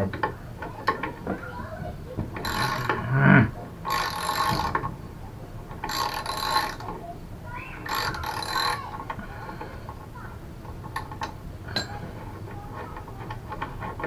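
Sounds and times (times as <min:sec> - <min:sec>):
ratchet wrench clicking: 0:02.4 - 0:03.0, 0:03.8 - 0:04.9, 0:05.8 - 0:06.9, 0:07.8 - 0:08.9.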